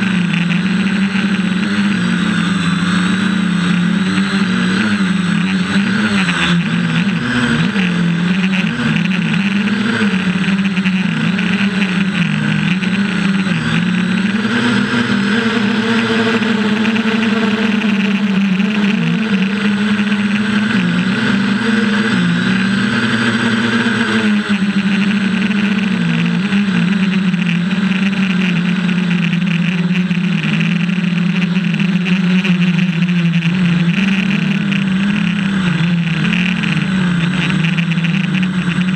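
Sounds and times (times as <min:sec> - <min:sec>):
drone propellers buzzing: 0:00.0 - 0:38.9.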